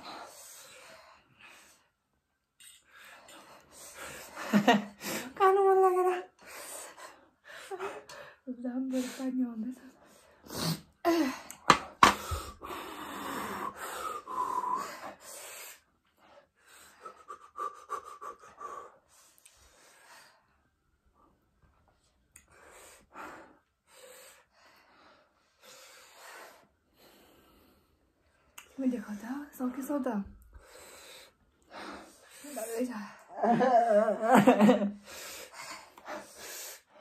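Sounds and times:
person breathing hard: 0.0 - 5.4, 10.0 - 20.7, 30.5 - 33.4, 34.6 - 37.0.

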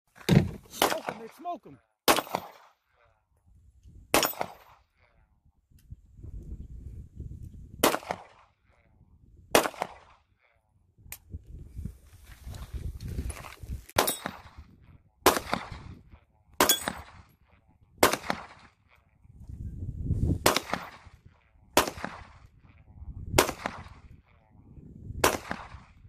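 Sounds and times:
pistol shots: 0.7 - 1.4, 2.0 - 2.8, 4.1 - 4.9, 7.8 - 8.5, 9.5 - 10.2, 14.0 - 14.6, 15.2 - 16.0, 16.6 - 17.3, 18.0 - 18.8, 20.4 - 21.2, 21.8 - 22.5, 23.4 - 24.1, 25.2 - 26.0.

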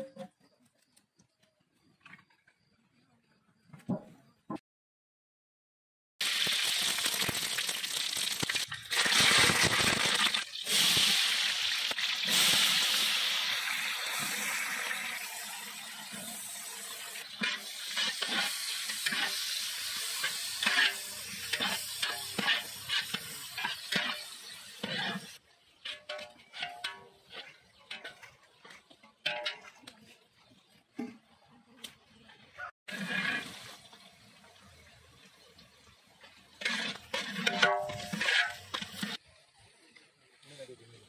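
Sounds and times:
onions sizzling in hot oil: 6.2 - 28.7, 32.9 - 39.6
metal ladle scraping a pot: 17.2 - 30.2, 32.9 - 33.6, 36.6 - 39.2.

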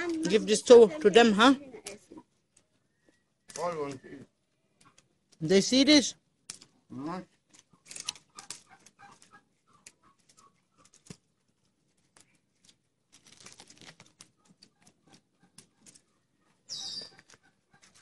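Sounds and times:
faint bird chirps: 2.7 - 4.4, 16.6 - 17.3
small clicks and rustles: 4.7 - 5.5, 6.4 - 6.8, 7.4 - 18.0.

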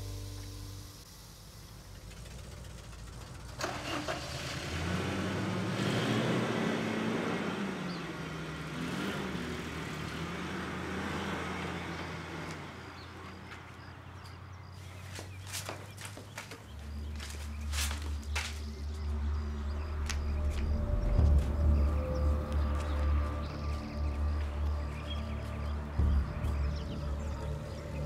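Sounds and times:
car engine running: 0.0 - 14.3.

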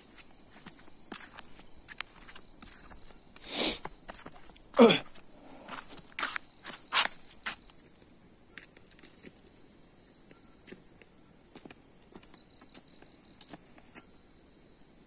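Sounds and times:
light footsteps in grass: 0.0 - 7.8, 10.6 - 14.1
high shrill insect trill: 0.0 - 11.6
pulsed insect trill: 0.0 - 15.0.

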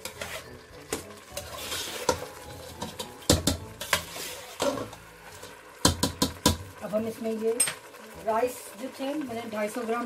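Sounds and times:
metal spoon scraping pot: 0.0 - 0.6, 1.4 - 5.5.

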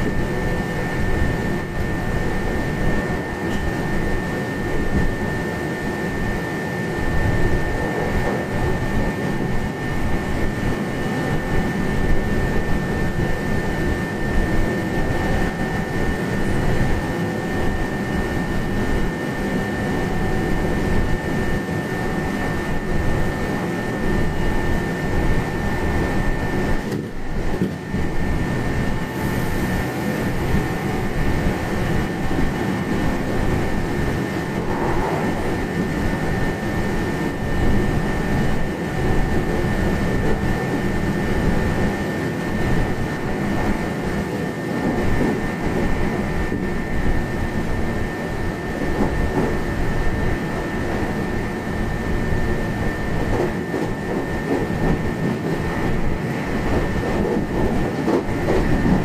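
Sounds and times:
train wheels rumbling on rail: 0.0 - 59.0
thin high whine: 28.0 - 57.1.

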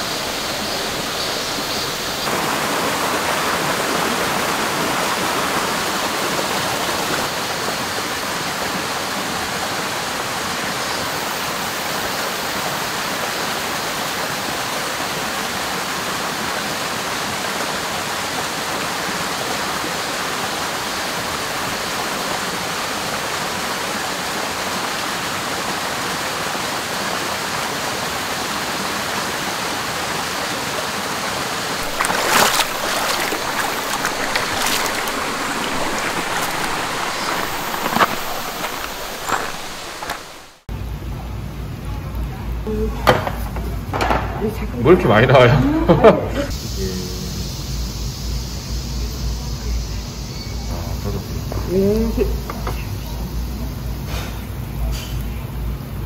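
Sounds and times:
stream rushing over rocks: 0.0 - 40.7
foot splashing in water: 31.8 - 40.6.

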